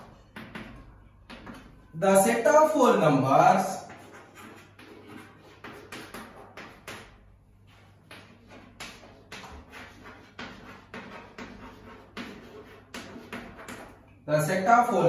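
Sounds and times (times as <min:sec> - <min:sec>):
handwriting strokes: 0:03.6 - 0:14.1.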